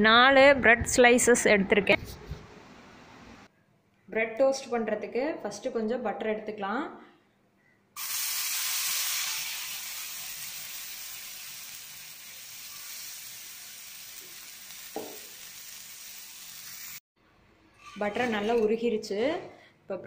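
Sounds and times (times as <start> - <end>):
butter sizzling on hot pan: 8.0 - 17.0.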